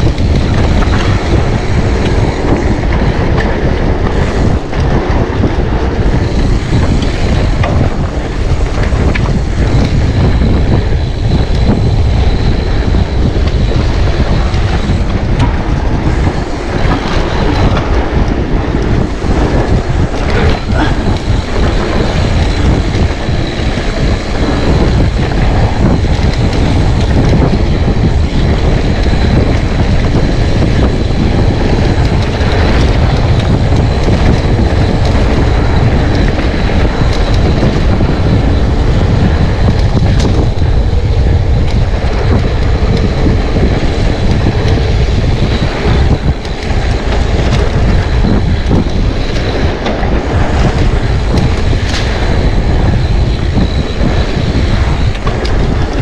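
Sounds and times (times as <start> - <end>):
bike knocks and rattles: 0.0 - 56.0
wind noise on microphone: 0.0 - 56.0.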